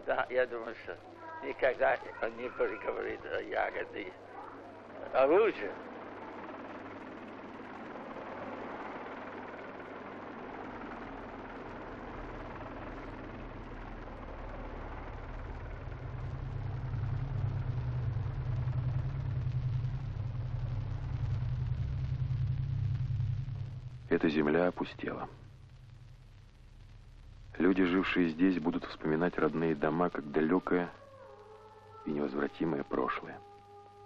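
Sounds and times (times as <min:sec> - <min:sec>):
helicopter engine and rotor: 0:00.0 - 0:21.8.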